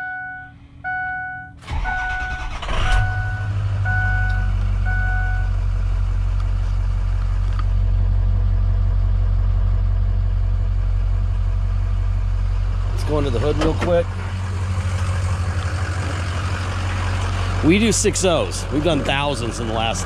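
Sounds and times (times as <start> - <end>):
dashboard warning chime beeping: 0.0 - 5.6
diesel engine starting and idling: 0.8 - 20.0.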